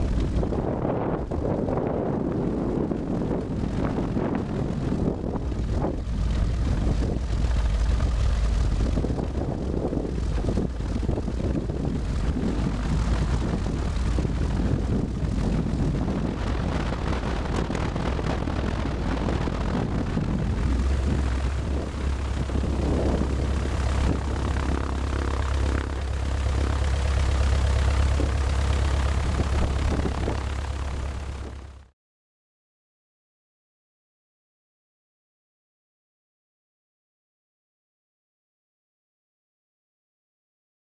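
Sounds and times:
propeller aircraft engine drone: 0.0s - 31.9s.

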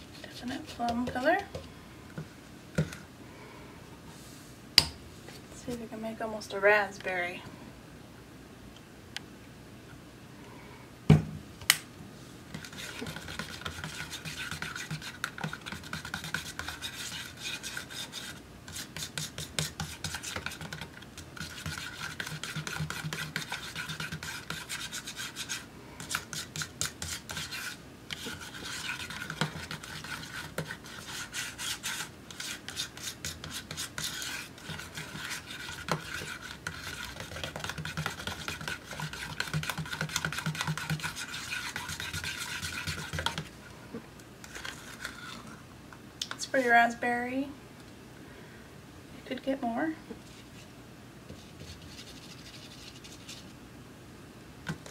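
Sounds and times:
paint stirred in plastic cup: 0.1s - 1.7s, 12.5s - 43.6s, 44.4s - 45.6s, 51.3s - 53.5s.

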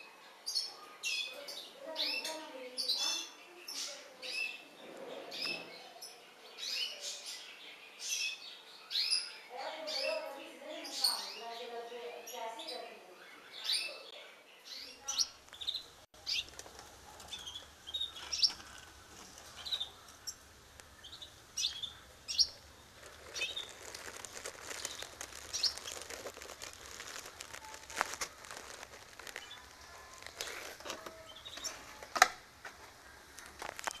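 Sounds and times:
canaries chirping: 0.0s - 32.1s, 33.0s - 34.0s
cage rustling: 15.7s - 21.2s, 21.9s - 34.0s.

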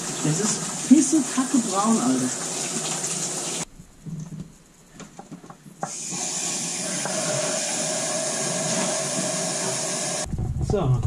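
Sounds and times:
water rushing through hose: 0.0s - 3.7s, 5.8s - 10.3s.

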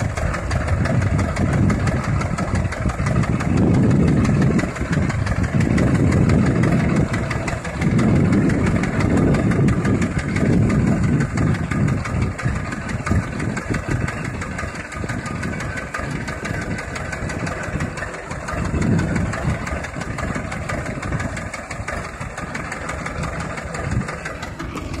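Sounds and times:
tractor diesel engine idling: 0.0s - 25.0s.

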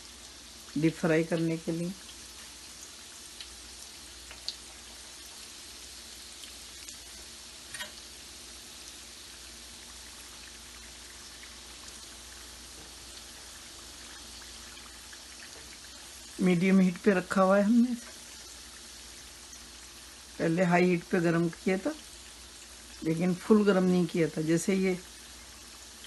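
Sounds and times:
oil popping and crackling: 0.0s - 8.2s, 8.9s - 20.4s
deep-frying sizzle: 0.0s - 26.0s.

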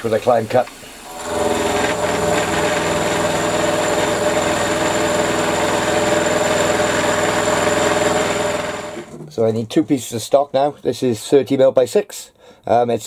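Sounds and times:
milling machine cutting drone: 1.0s - 9.2s
spindle running: 1.0s - 9.2s.

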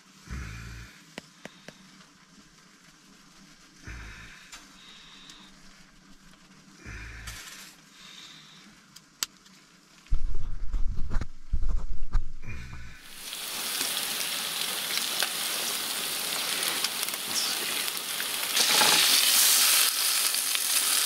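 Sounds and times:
fish sizzling in a pan: 13.1s - 21.0s.

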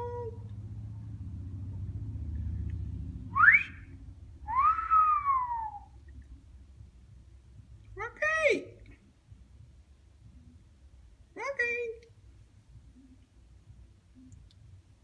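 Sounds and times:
parrot whistling: 4.5s - 6.0s.

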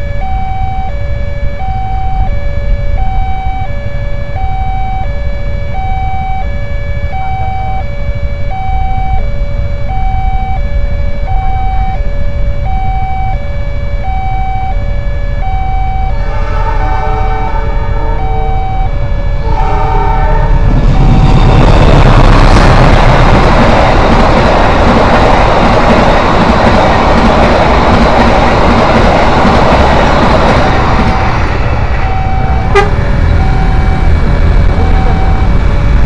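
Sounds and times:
steady low rumble: 0.0s - 36.0s
two-tone crossing alarm: 0.0s - 36.0s
horn: 16.2s - 18.7s, 19.4s - 21.1s, 32.7s - 33.0s.

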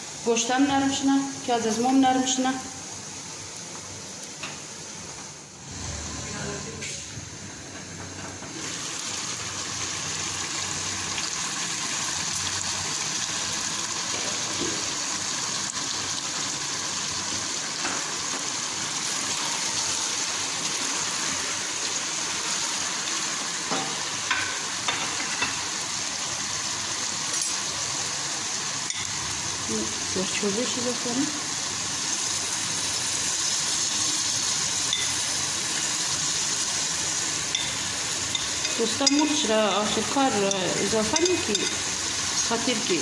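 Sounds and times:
food sizzling in oil: 0.0s - 43.0s.

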